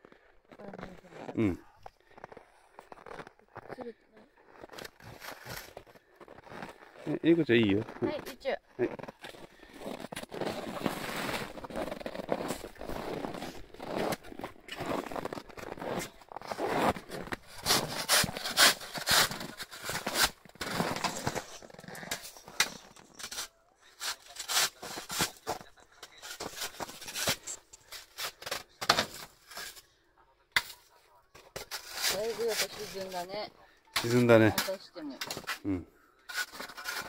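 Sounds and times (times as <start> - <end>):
footsteps through deep snow: 4.4 - 21.5
shovel scraping snow: 9.5 - 29.8, 31.6 - 33.4, 36.3 - 37.0.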